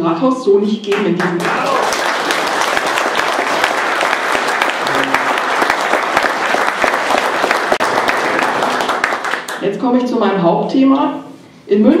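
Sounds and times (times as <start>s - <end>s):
audience applauding: 1.2s - 9.6s.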